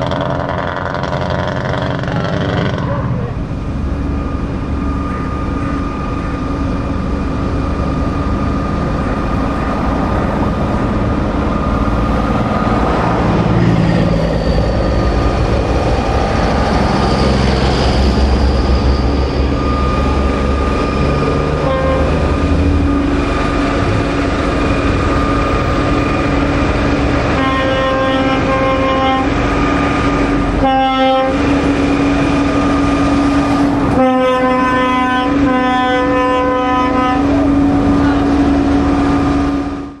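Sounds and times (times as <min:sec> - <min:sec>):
trucks rumbling past: 0:00.0 - 0:40.0
lorry air horns: 0:21.6 - 0:22.2, 0:27.3 - 0:29.4, 0:30.6 - 0:31.5, 0:33.9 - 0:38.9.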